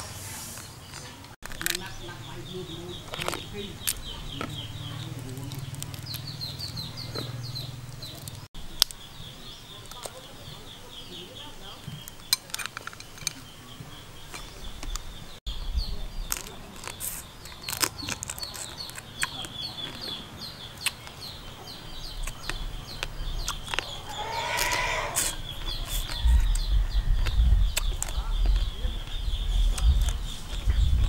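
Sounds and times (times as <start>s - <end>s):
steady high chirping: 0.6s - 16.3s, 16.9s - 31.0s
crab shell cracking: 1.4s - 2.0s, 3.1s - 4.5s, 5.2s - 6.9s, 16.2s - 20.0s
chicken calling: 23.3s - 27.4s.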